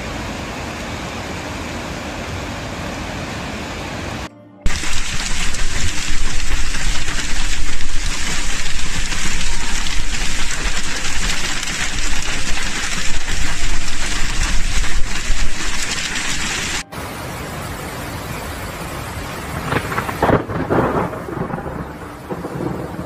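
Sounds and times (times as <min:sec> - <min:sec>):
heavy rain on road: 0:04.7 - 0:23.0.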